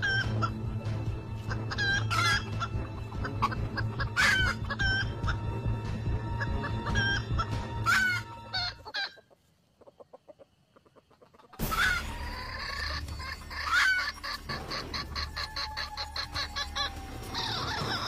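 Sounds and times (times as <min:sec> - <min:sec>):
roosters clucking and calling: 0:00.0 - 0:18.0.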